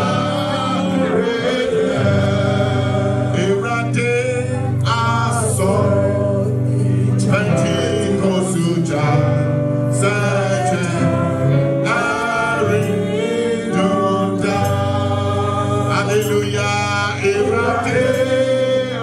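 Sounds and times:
gospel singing: 0.0s - 19.0s
instrumental accompaniment: 0.0s - 19.0s.

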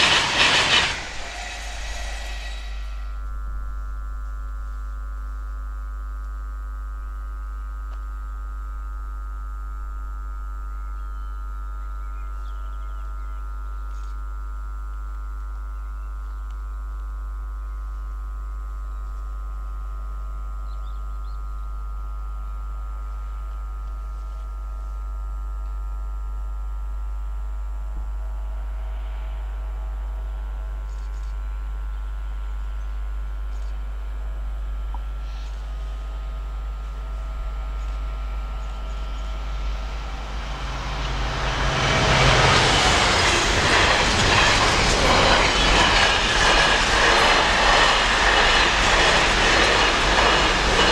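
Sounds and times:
freight train rumble: 0.0s - 4.1s, 31.7s - 50.9s.

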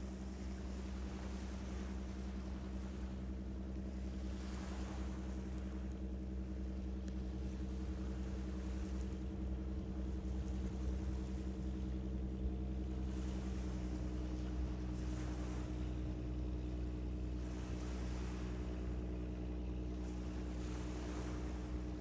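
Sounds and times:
ship engines droning: 0.0s - 22.0s.

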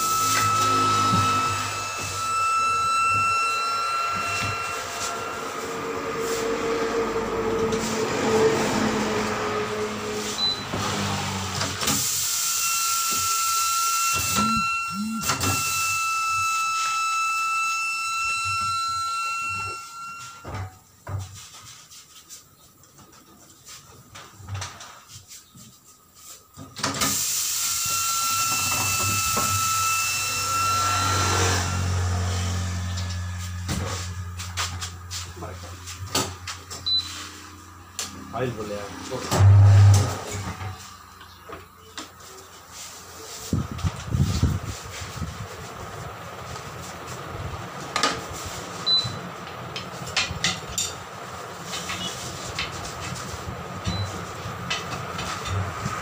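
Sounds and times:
machine whine: 0.0s - 20.7s, 27.6s - 42.4s.

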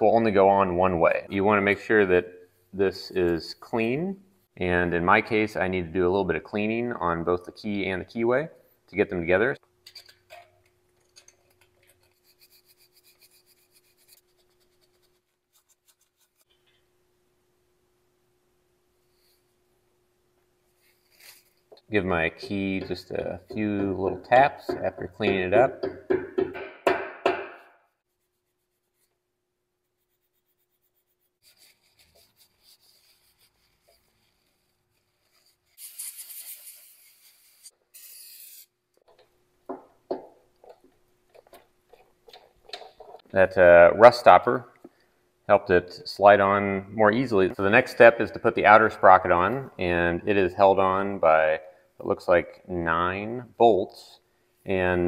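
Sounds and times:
metal pick scraping steel shaft: 22.4s - 25.7s
cloth wiping shaft: 29.9s - 38.7s
spray hissing: 35.8s - 38.7s.

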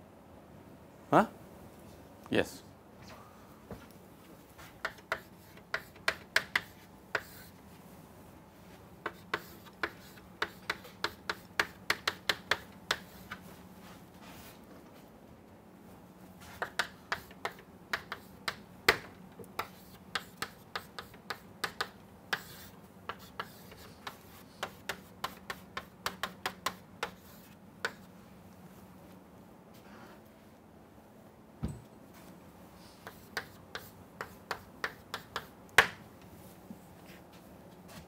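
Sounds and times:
chalk tapping on a chalkboard: 4.6s - 7.6s, 9.0s - 13.4s, 16.4s - 28.1s, 33.0s - 36.0s.

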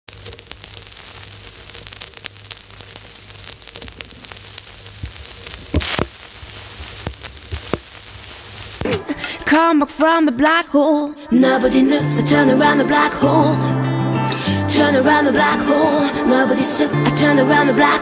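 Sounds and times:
vinyl crackle and hiss: 0.1s - 9.6s
music: 8.8s - 18.0s.

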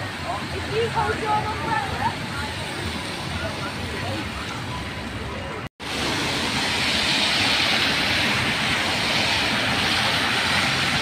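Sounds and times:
tyres hissing through surface water: 5.8s - 11.0s.

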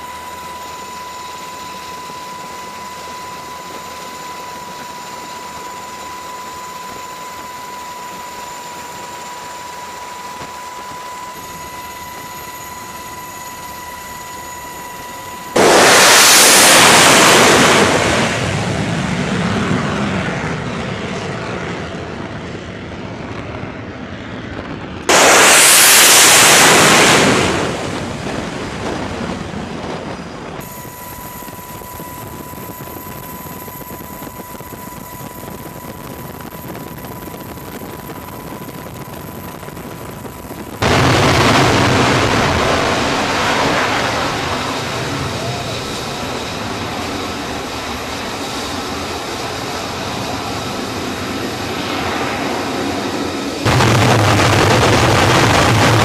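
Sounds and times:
thin high steady tone: 0.0s - 18.4s, 30.6s - 40.9s
steady hum: 0.0s - 19.8s, 25.0s - 56.0s
jet roar: 0.0s - 56.0s.

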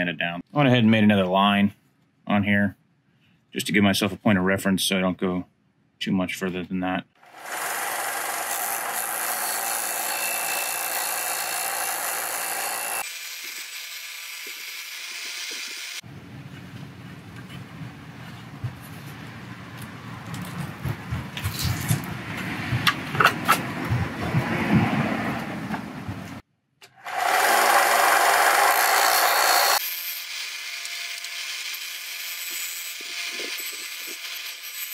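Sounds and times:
disc sander sanding board: 7.4s - 16.0s, 27.1s - 31.8s.

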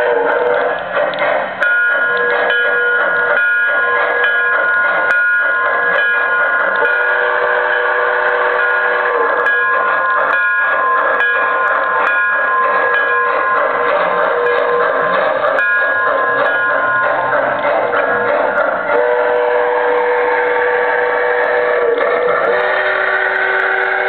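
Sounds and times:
chorded steam whistle: 0.0s - 0.8s, 5.4s - 11.7s, 16.2s - 24.0s
model train running noise: 0.0s - 24.0s.

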